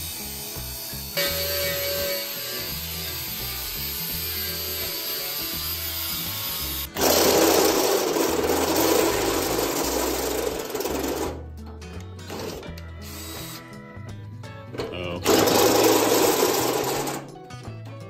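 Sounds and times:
angle grinder on metal: 0.0s - 11.4s, 15.2s - 17.3s
drill boring into sheet metal: 0.0s - 11.4s, 15.2s - 17.3s
background music with bass line: 8.3s - 18.0s.

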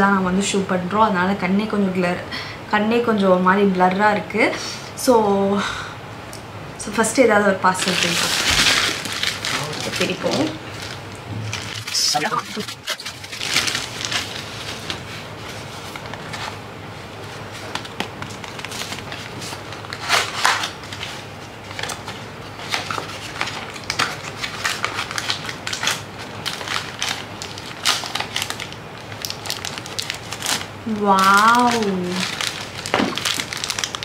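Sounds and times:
packaging crackling and rustling: 7.8s - 34.0s.

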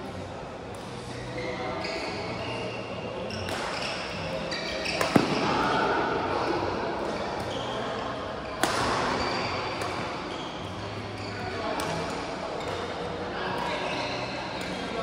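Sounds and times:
sports hall noise: 0.0s - 15.0s
racket striking shuttlecock: 4.8s - 5.6s, 8.6s - 9.2s.

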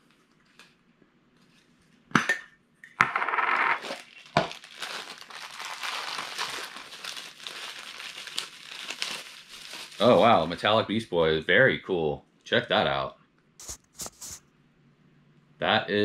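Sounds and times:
plastic bag crinkling: 3.8s - 10.6s.

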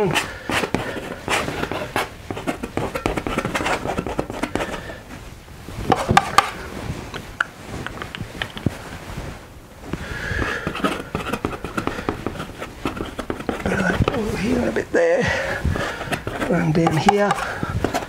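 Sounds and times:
palette knife scraping and tapping: 0.0s - 5.0s, 5.9s - 6.6s, 7.8s - 8.7s, 9.9s - 14.7s, 15.5s - 18.0s
knife spreading paint on canvas: 0.0s - 5.1s, 5.8s - 18.0s.

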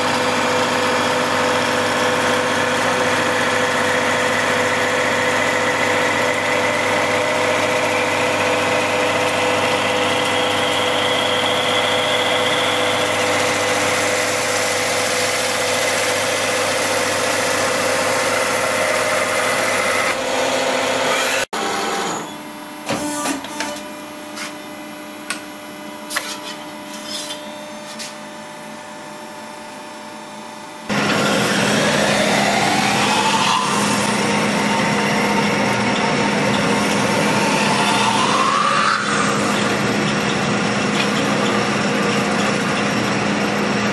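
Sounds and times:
lathes running with whining tones: 0.0s - 22.8s, 29.8s - 43.9s
lathe squealing on sheet metal: 31.2s - 41.6s.

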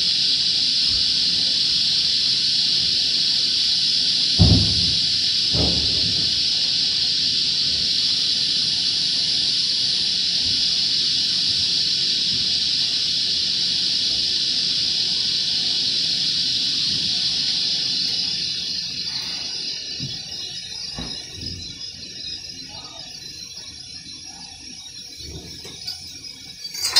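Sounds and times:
loud steady hiss: 0.0s - 23.7s.

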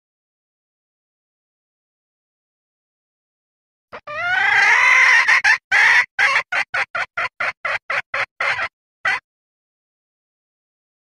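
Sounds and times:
hen calling: 4.0s - 9.2s
hen clucking: 4.0s - 9.2s.

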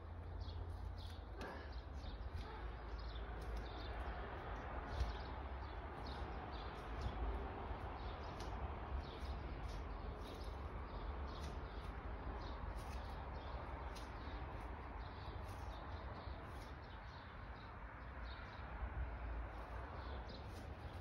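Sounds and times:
small bird chirping: 0.0s - 18.7s.

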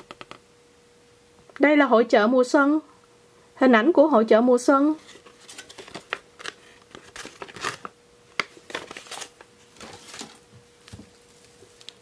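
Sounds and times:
paper rustling and crinkling: 5.0s - 12.0s.

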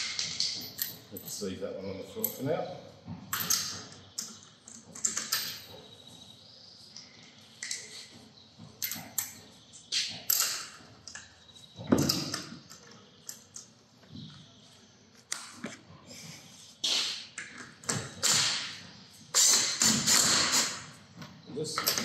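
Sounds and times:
metal tools knocking and clinking: 3.3s - 3.9s, 5.0s - 5.7s, 8.8s - 9.4s, 21.7s - 22.0s.

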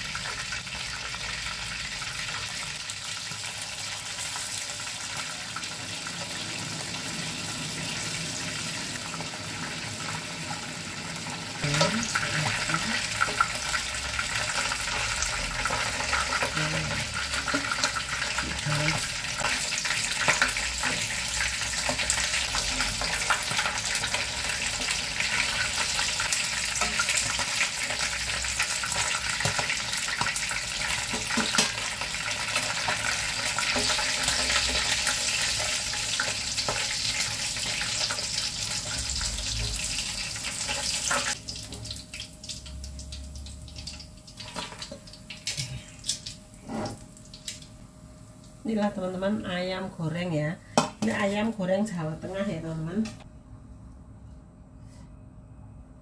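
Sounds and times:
chicken sizzling in oil: 0.0s - 45.6s.

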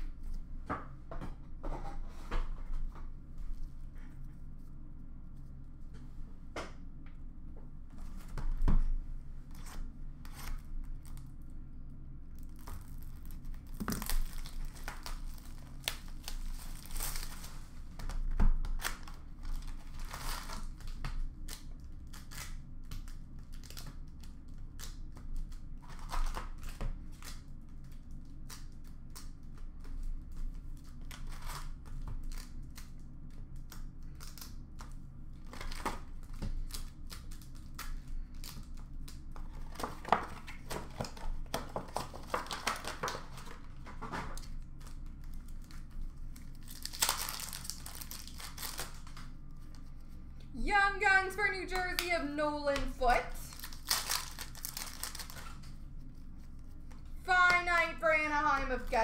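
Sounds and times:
wrappers ripping and crinkling: 12.3s - 49.9s, 53.1s - 57.8s.

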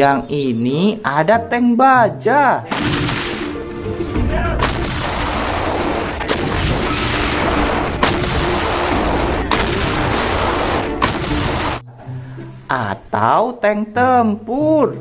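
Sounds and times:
artillery firing sharp shots: 2.7s - 11.8s.

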